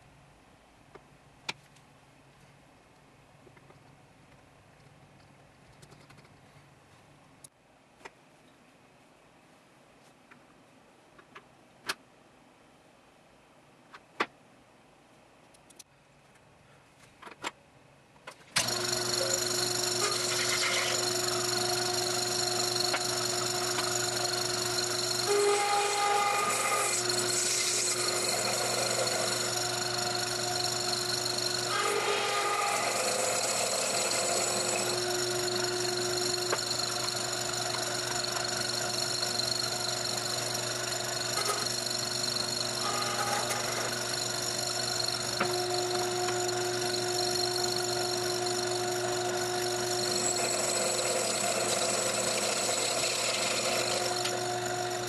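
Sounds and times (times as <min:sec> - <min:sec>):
lathe motor whine: 0:18.6 - 0:55.0.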